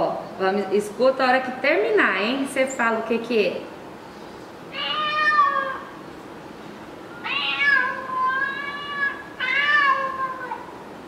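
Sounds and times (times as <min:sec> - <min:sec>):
cat meowing: 0:04.7 - 0:06.0, 0:07.2 - 0:10.8.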